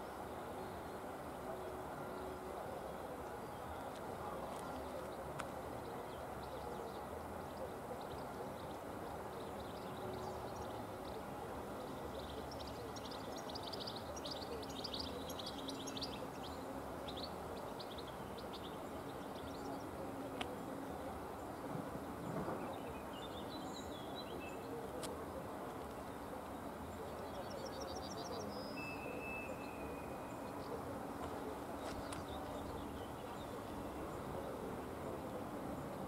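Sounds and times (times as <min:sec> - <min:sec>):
steady low background noise: 0:00.0 - 0:36.0
small birds chirping: 0:22.6 - 0:35.2.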